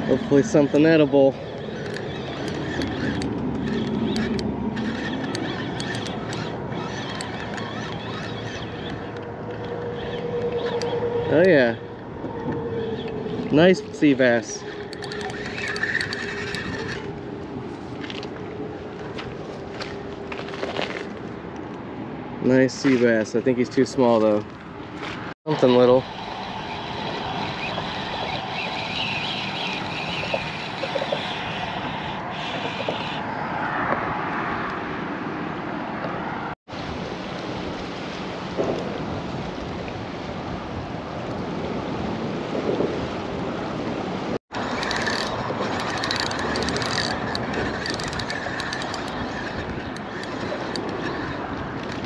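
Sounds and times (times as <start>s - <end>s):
wind buffeting microphone: 36.7s - 52.0s.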